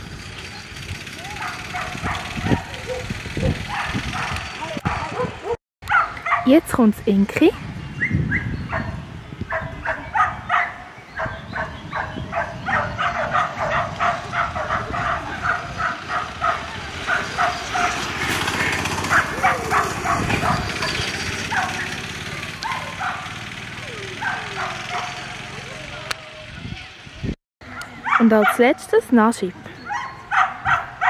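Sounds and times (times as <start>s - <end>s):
dog yipping: 1.4s - 6.6s, 8.0s - 18.0s, 19.1s - 22.0s, 22.6s - 26.2s, 27.7s - 28.8s, 29.8s - 31.0s.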